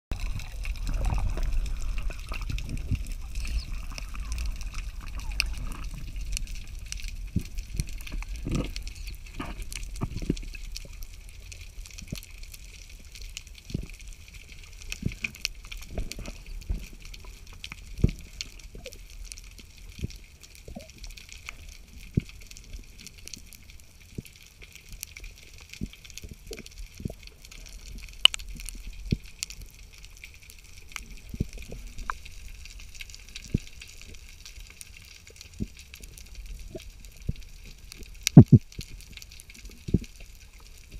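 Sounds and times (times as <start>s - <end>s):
underwater clicks and knocks: 0.1s - 10.9s, 38.0s - 38.9s
underwater crackling hiss: 0.1s - 40.9s.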